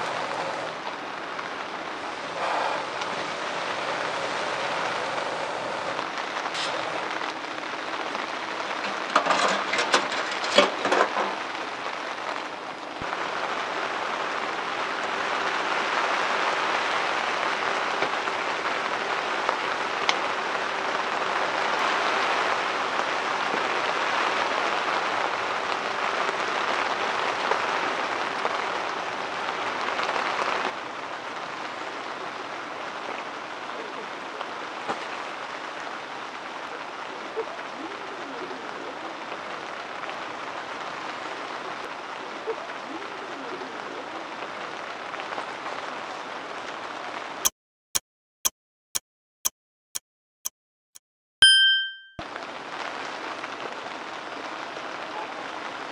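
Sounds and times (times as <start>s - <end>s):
rain pattering: 0.0s - 47.5s, 52.2s - 55.9s
knocks and clatters: 8.8s - 11.5s.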